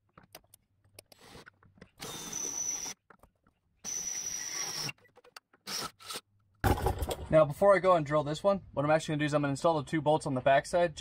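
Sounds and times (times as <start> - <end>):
cordless drill motor whine: 2.0 - 3.0, 3.8 - 4.9.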